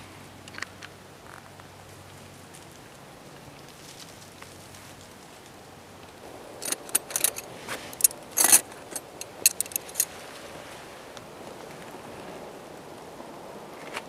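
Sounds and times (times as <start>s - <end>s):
metal tent stakes clinking: 6.6s - 10.1s.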